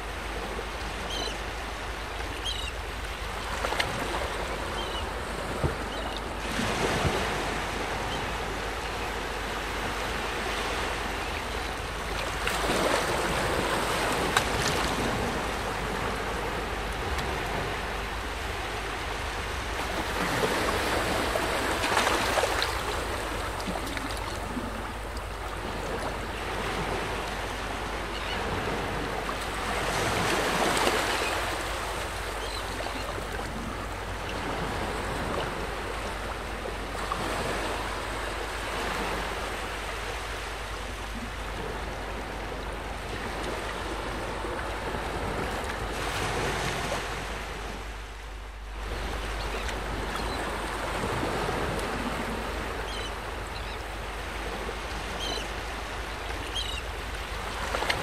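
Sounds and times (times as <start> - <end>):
small waves lapping at shoreline: 0.0 - 58.0.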